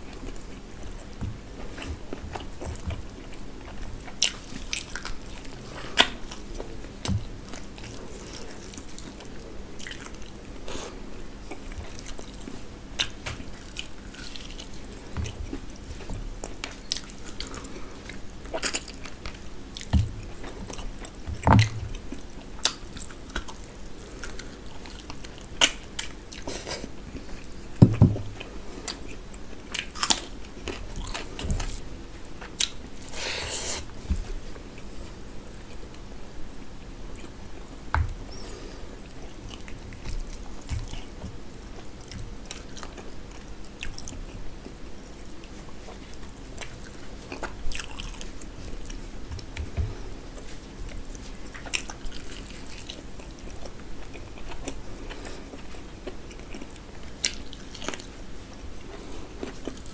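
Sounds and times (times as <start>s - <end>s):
person chewing and crunching: 0.0s - 35.0s, 36.6s - 59.9s
louder thumps: 27.8s - 28.3s.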